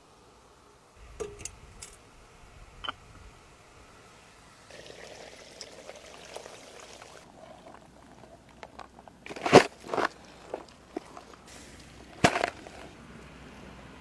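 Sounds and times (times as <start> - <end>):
tea pouring from a teapot: 4.7 - 8.6.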